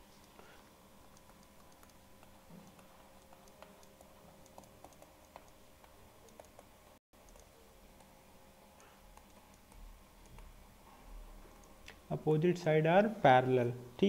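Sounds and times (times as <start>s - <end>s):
faint steady hum: 0.0s - 14.0s
stylus tapping on screen: 1.0s - 8.1s.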